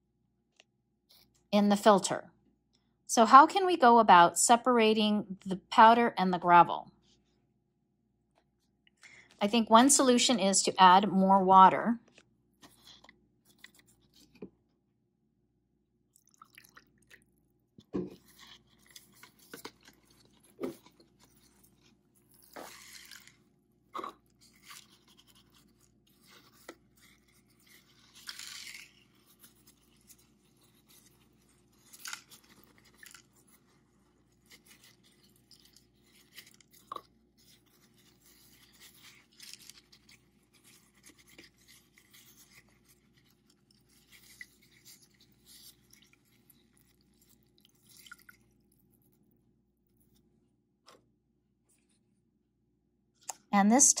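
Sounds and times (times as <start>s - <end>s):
soft rustles and scrapes: 12.0s - 14.6s, 17.8s - 52.2s.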